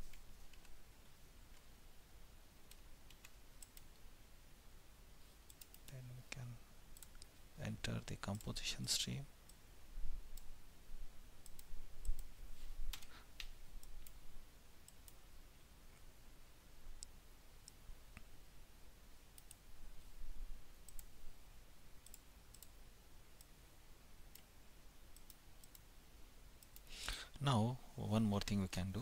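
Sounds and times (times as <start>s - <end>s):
faint low hum: 0.0s - 29.0s
computer mouse clicking: 0.1s - 0.8s, 2.7s - 4.0s, 5.5s - 5.9s, 7.0s - 7.3s, 11.4s - 12.3s, 12.9s - 14.2s, 19.4s - 19.6s, 20.9s - 21.1s, 22.0s - 22.8s, 25.2s - 25.9s, 26.6s - 26.9s.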